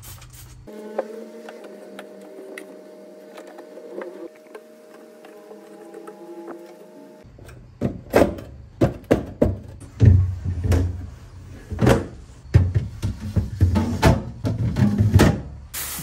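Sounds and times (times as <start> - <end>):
plastic fridge parts knocking: 7.8 - 11.0.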